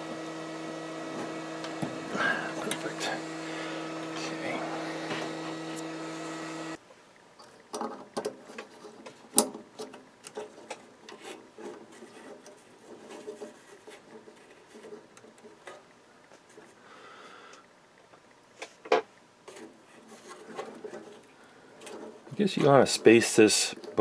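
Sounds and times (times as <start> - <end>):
wires rubbing and rustling: 0.0 - 6.8, 7.4 - 16.8, 18.5 - 24.0
steady hum: 0.0 - 7.1.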